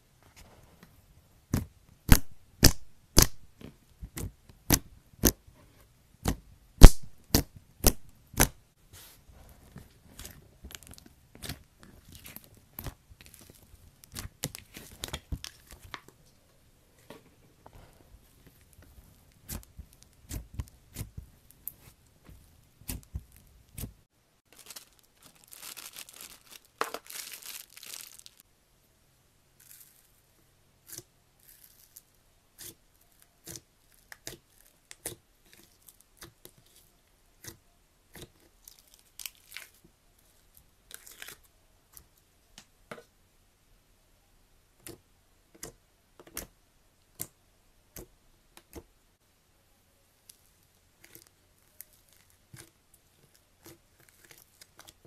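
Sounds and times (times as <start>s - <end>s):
slime crackling: 10.0s - 16.0s, 18.5s - 28.4s, 50.3s - 55.0s.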